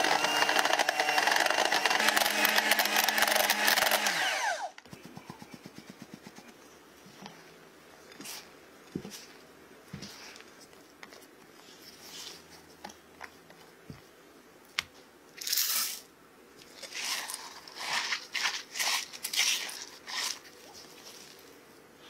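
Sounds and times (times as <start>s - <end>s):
spatula stirring thick batter: 16.6s - 21.4s.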